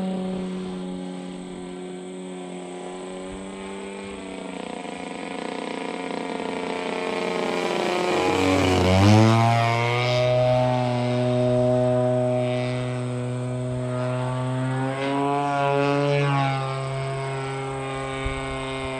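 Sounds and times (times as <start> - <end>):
model plane motor droning: 0.0 - 18.9.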